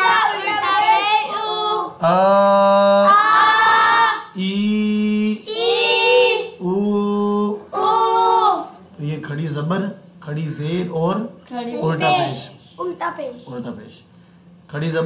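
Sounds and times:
person chanting recitation: 0:04.3 - 0:05.6.

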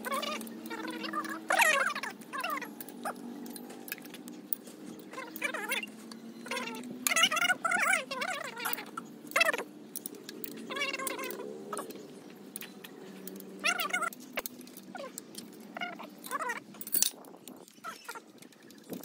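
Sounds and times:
wavering animal calls: 0:00.0 - 0:16.8
light metallic clinks: 0:16.7 - 0:17.6.

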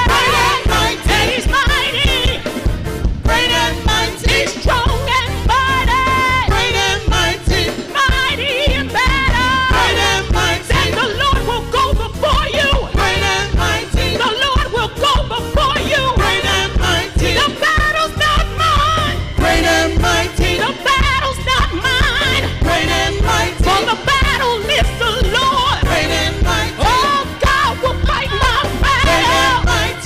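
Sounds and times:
band with deep bass and beat: 0:00.0 - 0:30.0.

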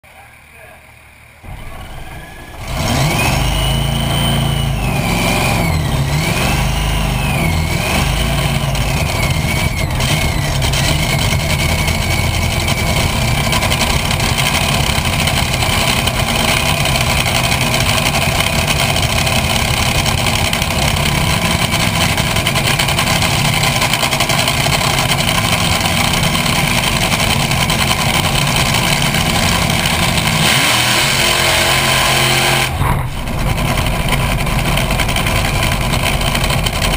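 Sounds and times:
dragster engine running loud: 0:00.0 - 0:36.9
wavering high whine: 0:00.1 - 0:06.0.

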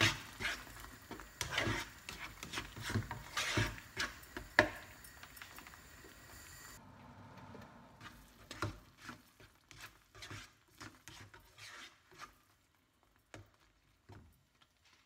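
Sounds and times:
spatula scraping a frying pan: 0:00.0 - 0:05.8, 0:08.0 - 0:12.7.

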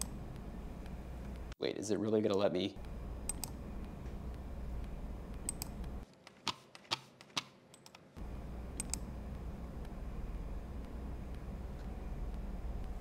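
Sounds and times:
low background hum: 0:00.0 - 0:13.0
keyboard and mouse clicks: 0:03.3 - 0:03.6, 0:04.8 - 0:08.2, 0:08.8 - 0:09.1.

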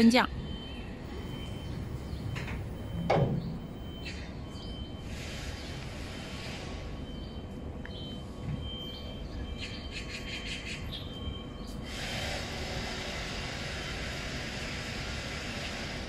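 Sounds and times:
low motor hum: 0:00.4 - 0:09.6.

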